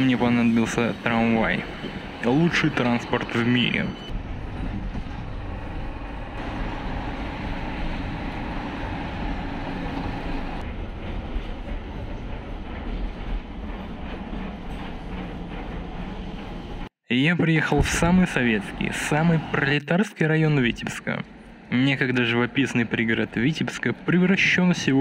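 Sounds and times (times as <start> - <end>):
ride inside moving tram: 0.0 - 17.0
tram passing on rails: 0.0 - 19.8, 20.5 - 25.0.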